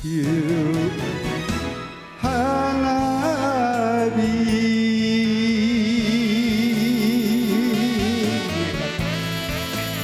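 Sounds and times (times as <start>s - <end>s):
karaoke backing track: 0.0s - 10.0s
man singing a long vibrato note: 2.2s - 10.0s.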